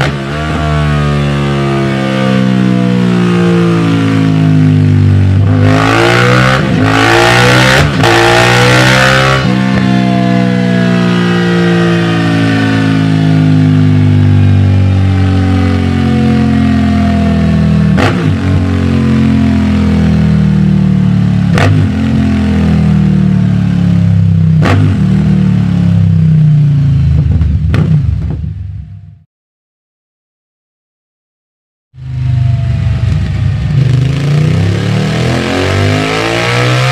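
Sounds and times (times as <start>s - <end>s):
motorcycle engine running: 9.2s - 29.0s, 32.0s - 36.3s.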